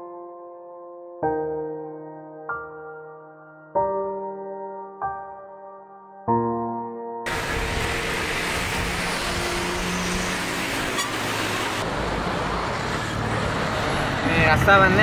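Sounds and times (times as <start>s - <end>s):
road traffic: 7.3s - 15.0s.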